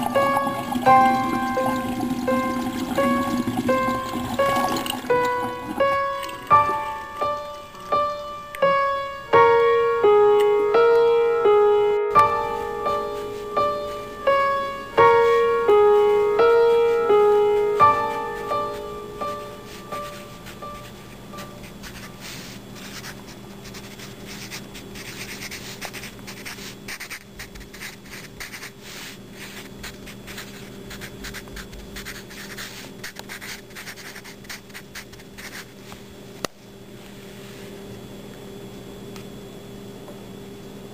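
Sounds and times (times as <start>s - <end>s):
pencil writing on paper: 16.8s - 28.8s, 29.5s - 35.7s.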